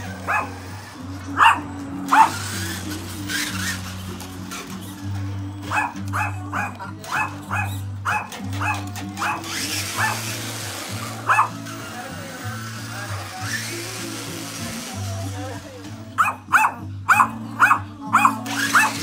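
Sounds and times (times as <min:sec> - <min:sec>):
background music with bass line: 0:00.0 - 0:19.0
small dog yapping: 0:00.2 - 0:00.6, 0:01.4 - 0:02.4, 0:05.7 - 0:10.3, 0:11.2 - 0:11.6, 0:16.2 - 0:19.0.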